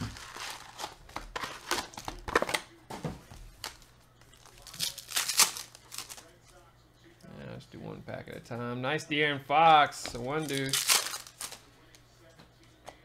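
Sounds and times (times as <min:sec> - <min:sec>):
foil packs crinkling: 0:00.0 - 0:02.6, 0:03.5 - 0:06.3, 0:10.3 - 0:11.6.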